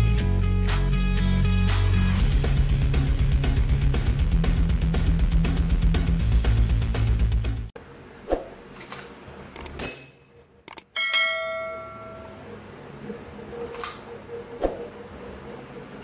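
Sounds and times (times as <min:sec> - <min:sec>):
bell-like ding: 0:11.0 - 0:12.4.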